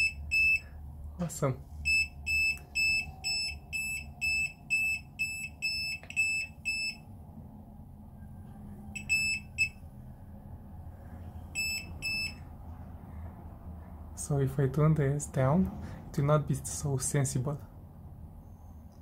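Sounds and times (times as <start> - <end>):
voltage tester beeping: 0.0 - 0.7, 1.8 - 7.0, 8.9 - 9.8, 11.6 - 12.4.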